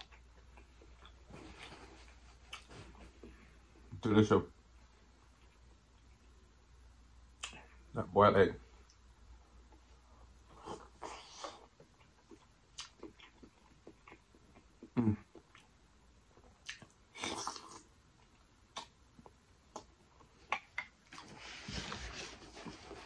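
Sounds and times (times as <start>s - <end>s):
mouth clicks and smacks: 7.4s - 7.7s, 11.4s - 15.8s, 16.4s - 21.2s.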